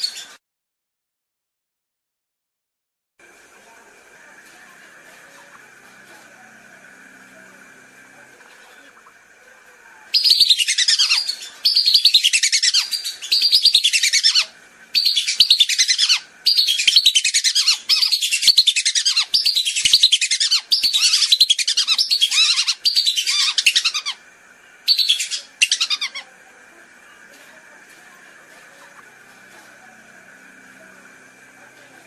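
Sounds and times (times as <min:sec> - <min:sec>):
whistling ducks calling: 0:10.1 - 0:24.2, 0:24.8 - 0:26.3.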